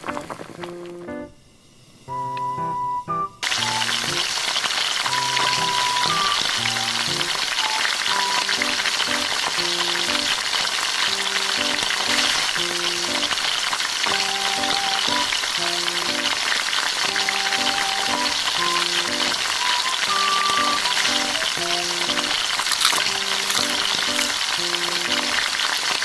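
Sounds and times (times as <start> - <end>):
simple background melody: 0.0 - 1.5, 2.1 - 4.3, 5.1 - 10.4, 11.1 - 13.4, 14.1 - 16.4, 17.0 - 22.4, 23.0 - 25.5
food sizzling in a frying pan: 3.4 - 26.0.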